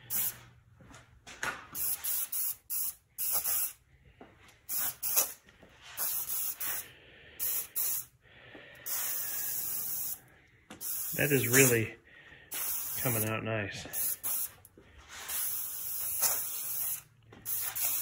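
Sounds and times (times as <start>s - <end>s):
aerosol spray can hissing: 0.1s - 0.3s, 1.8s - 3.8s, 4.7s - 6.8s, 7.4s - 8.1s, 8.8s - 10.2s, 10.8s - 11.9s, 12.5s - 18.0s.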